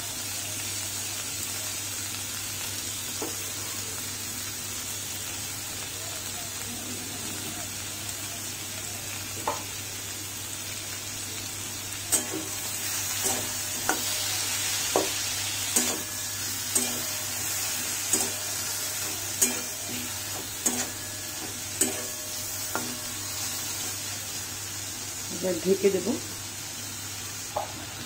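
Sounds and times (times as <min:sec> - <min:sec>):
vegetables sizzling: 0:00.0 - 0:28.0
spatula knocking against wok: 0:14.8 - 0:15.2.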